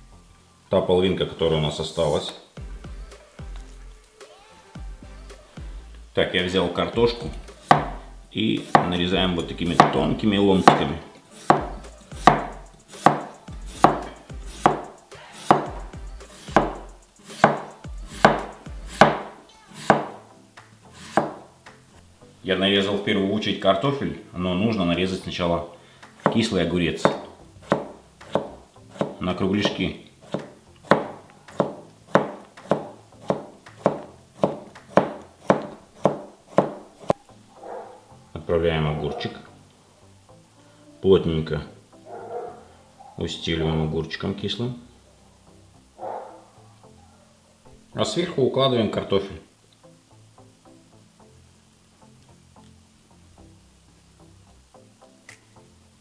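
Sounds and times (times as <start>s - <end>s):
knife slicing potato: 7.3s - 20.2s, 20.9s - 21.4s, 26.2s - 37.2s
knife knocking on cutting board: 7.7s - 8.0s, 9.8s - 10.0s, 11.5s - 14.9s, 15.5s - 15.8s, 16.6s - 16.8s, 17.4s - 20.2s, 27.0s - 36.8s.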